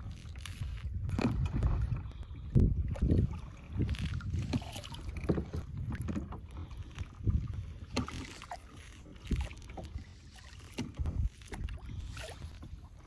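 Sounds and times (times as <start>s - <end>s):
water splashing around kayak: 0.0s - 13.0s
wind on microphone: 0.0s - 13.0s.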